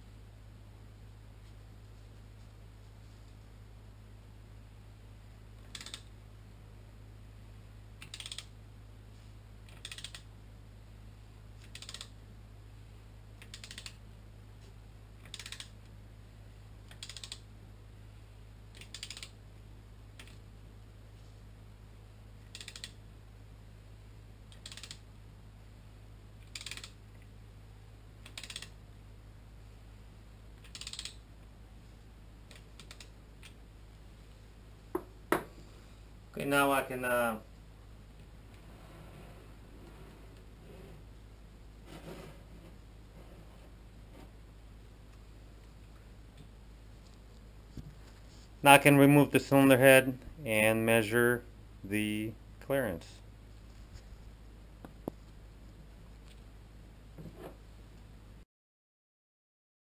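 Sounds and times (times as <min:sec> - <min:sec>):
socket ratchet clicking: 0:08.0 - 0:08.5, 0:15.2 - 0:15.7, 0:28.2 - 0:28.7, 0:30.7 - 0:31.2.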